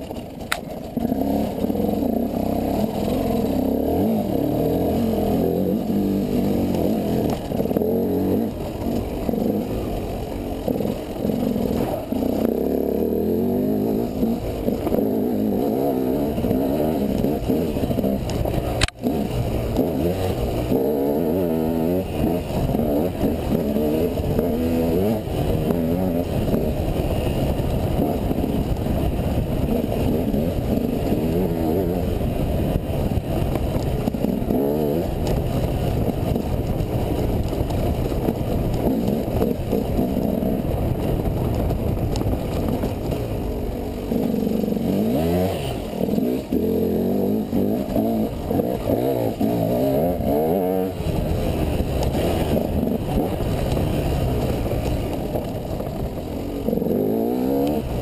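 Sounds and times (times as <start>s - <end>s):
dirt bike engine revving: 0.0s - 58.0s.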